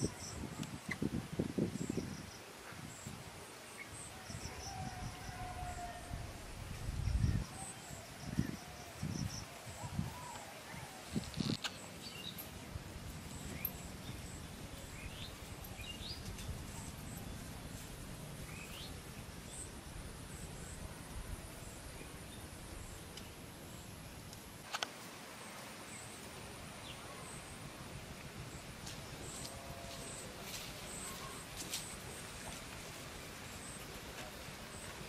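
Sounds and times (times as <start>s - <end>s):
faint insect hum: 0.0s - 35.0s
birds chirping: 8.3s - 17.5s.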